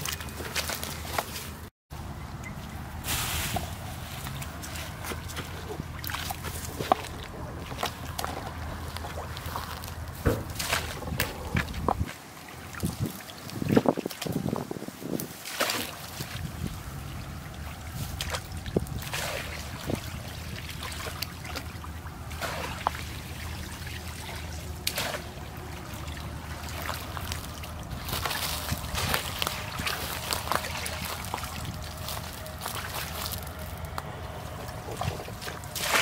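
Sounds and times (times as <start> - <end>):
stream water trickling: 0.0 - 36.0
basket splashing in water: 15.4 - 16.5, 17.6 - 33.4, 35.0 - 36.0
water draining through basket: 15.5 - 33.7.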